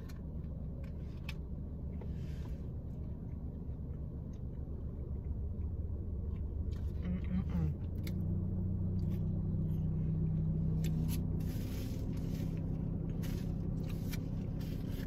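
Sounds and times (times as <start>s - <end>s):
car engine rumble: 0.0s - 15.0s
soft chewing clicks: 2.8s - 8.3s.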